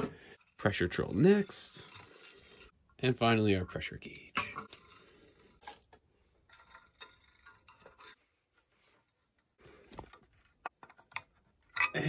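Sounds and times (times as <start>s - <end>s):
small metal parts clicking: 1.1s - 2.8s.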